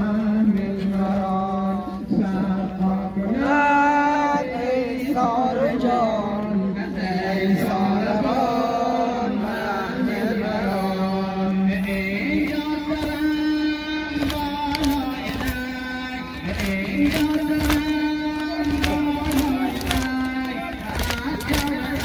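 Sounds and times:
person chanting a lament: 0.0 - 22.0.

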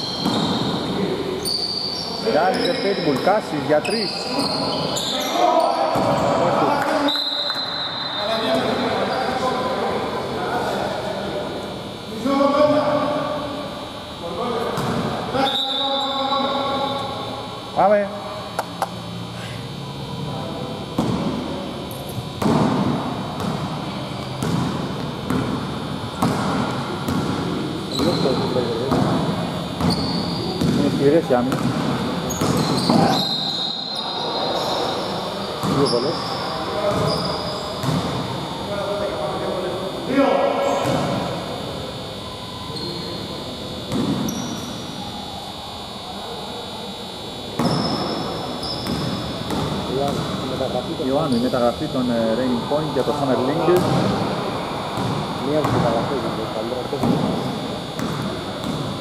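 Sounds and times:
basketball bouncing on court: 0.0 - 0.8, 5.9 - 6.4, 14.8 - 15.1, 20.9 - 21.5, 22.2 - 33.2, 35.6 - 36.2, 36.8 - 38.2, 40.7 - 41.3, 43.9 - 44.6, 47.6 - 50.4, 53.7 - 56.2, 56.9 - 59.0
faint murmur of voices: 0.0 - 59.0.

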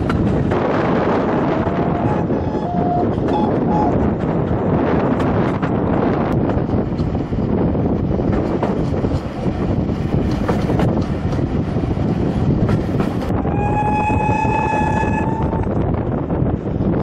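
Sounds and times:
train rumbling along track: 0.0 - 17.0
wind on the microphone: 0.0 - 17.0
steam locomotive whistle: 1.4 - 4.0, 13.4 - 15.8.

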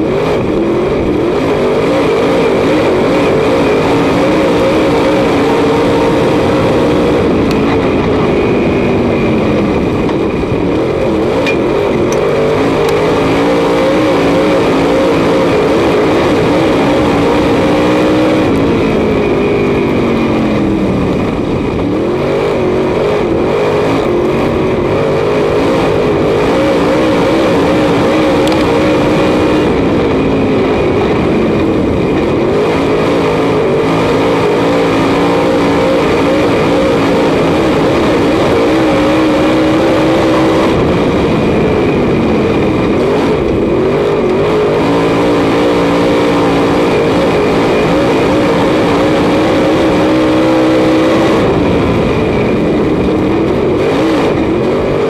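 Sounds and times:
race car engine: 0.0 - 55.0.

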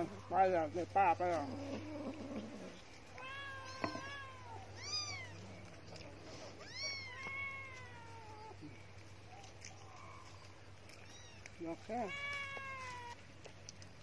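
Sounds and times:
cat meowing: 3.1 - 5.4, 6.6 - 8.6, 11.0 - 13.2.

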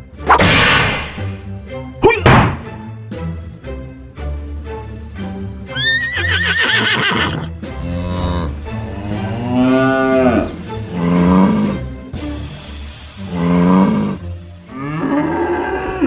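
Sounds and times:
background music: 0.0 - 16.0
horse whinny: 5.7 - 7.5
cow mooing: 7.3 - 11.9, 13.3 - 16.0.

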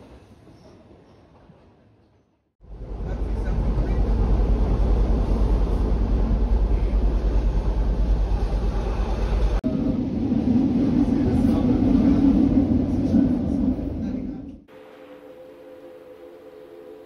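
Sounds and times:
train rumbling inside carriage: 2.6 - 14.7.

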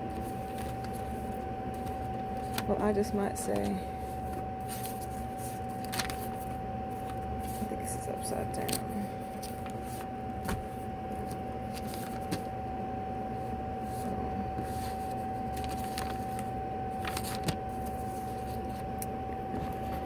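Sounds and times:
air conditioner humming: 0.0 - 20.0
paper crinkles: 0.1 - 2.7, 3.6 - 7.8, 8.7 - 12.5, 13.9 - 18.8
papers rustling: 0.1 - 7.8, 8.6 - 12.5, 13.8 - 18.8.

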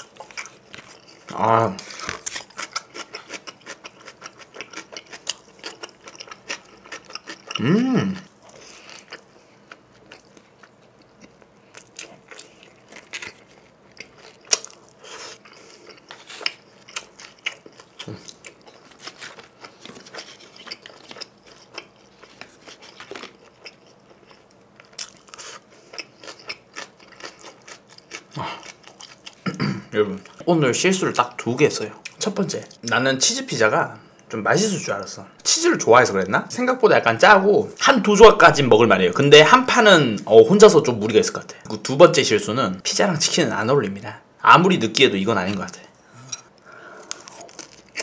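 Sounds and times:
person chewing pizza: 0.0 - 29.6, 45.5 - 48.0
person humming: 7.6 - 8.2.

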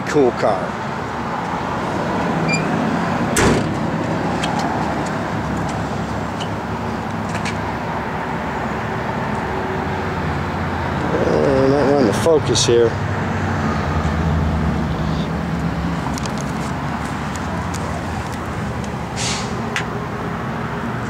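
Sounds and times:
outdoor traffic noise: 0.0 - 21.0
car trunk lid thump: 3.3 - 3.8.

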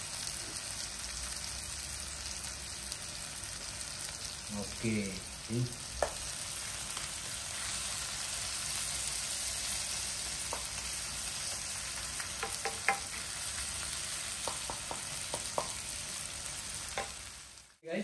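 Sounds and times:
paste sizzling in oil: 0.0 - 17.8
spatula tapping a wok: 6.0 - 6.2, 10.4 - 13.3, 14.2 - 16.0, 16.9 - 17.3.

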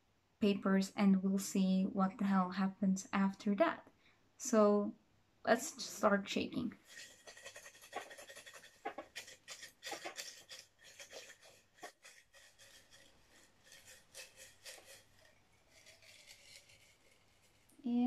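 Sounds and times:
paper slips rattling in a mug: 6.8 - 18.0.

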